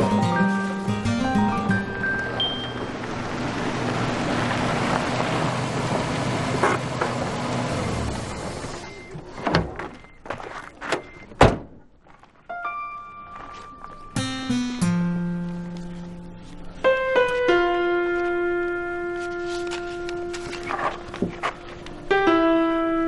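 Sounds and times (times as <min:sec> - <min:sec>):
soft musical notes: 0:00.0 - 0:04.1, 0:12.5 - 0:23.0
truck driving on gravel: 0:00.0 - 0:09.4, 0:19.3 - 0:22.1
car door slamming: 0:11.3 - 0:11.8.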